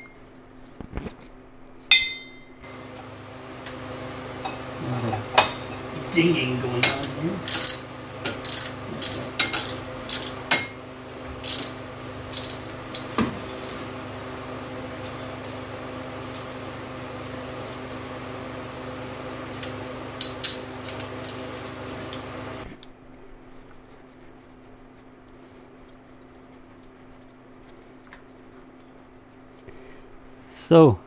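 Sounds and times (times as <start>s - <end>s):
steady hum: 0.0s - 31.0s
metal tools clinking: 6.9s - 10.4s, 11.4s - 13.1s
hand ratchet clicking: 7.5s - 7.8s, 8.4s - 10.3s.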